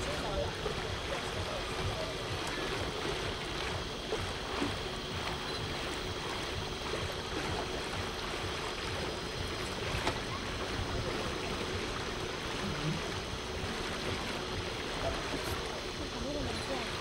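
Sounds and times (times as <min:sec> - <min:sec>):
boat motion noise: 0:00.0 - 0:17.0
water rushing past boat: 0:00.0 - 0:17.0.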